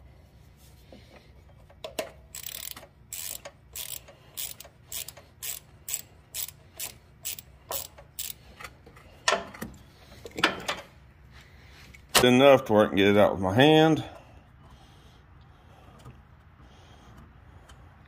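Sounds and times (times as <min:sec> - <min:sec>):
ratchet wrench clicking: 0:01.9 - 0:08.6.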